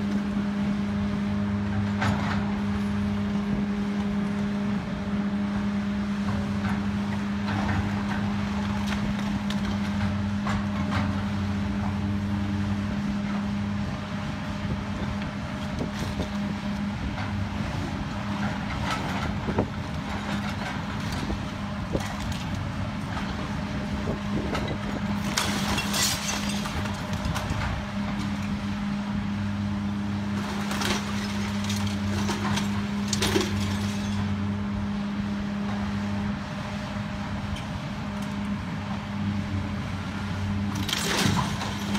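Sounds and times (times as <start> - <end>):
excavator diesel engine running: 0.0 - 41.9
masonry debris crashing down: 25.2 - 27.6, 30.4 - 34.3.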